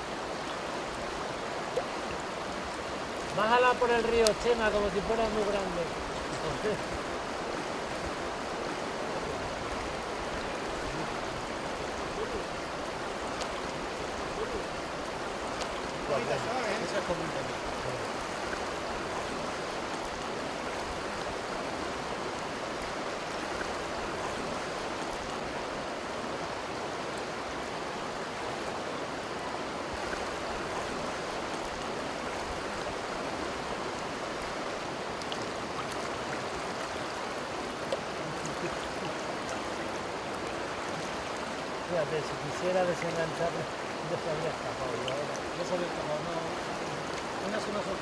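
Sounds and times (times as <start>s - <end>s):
river flowing over stones: 0.0s - 48.0s.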